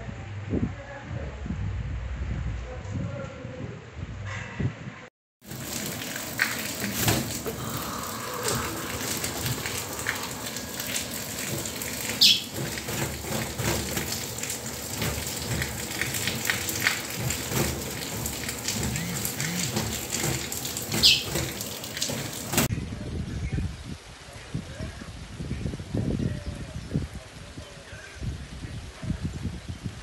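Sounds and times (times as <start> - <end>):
rain on roofs and pavement: 5.4 - 23.2.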